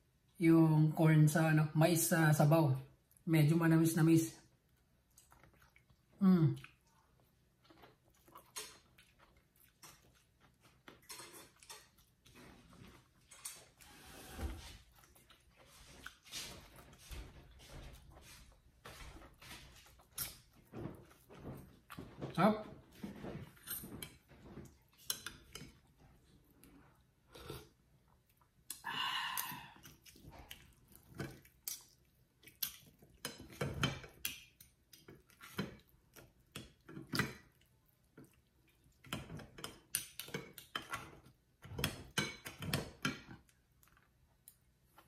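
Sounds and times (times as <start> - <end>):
cutlery scraping on a plate: 23.5 - 25.8.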